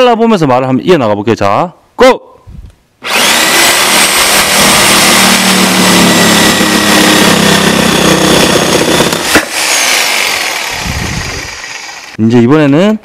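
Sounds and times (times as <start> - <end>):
reciprocating saw cutting wood: 3.0 - 12.2.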